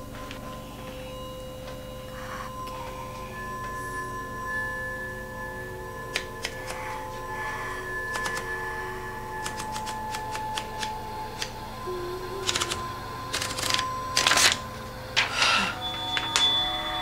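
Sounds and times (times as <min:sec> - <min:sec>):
held music tones: 0:00.0 - 0:17.0
typewriter keys clacking: 0:08.1 - 0:08.4, 0:09.4 - 0:11.5, 0:12.4 - 0:14.6.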